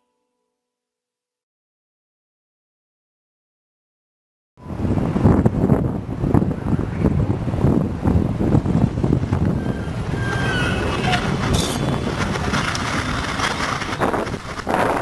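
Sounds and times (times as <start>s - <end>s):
wind-like rushing with rumble: 4.6s - 15.0s
faint whistle-like glides: 6.5s - 7.2s, 9.4s - 15.0s.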